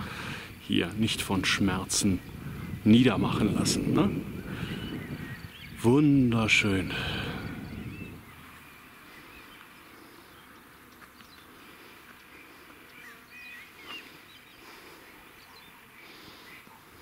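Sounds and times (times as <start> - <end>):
bird chirps: 4.4 - 5.9, 12.2 - 16.8.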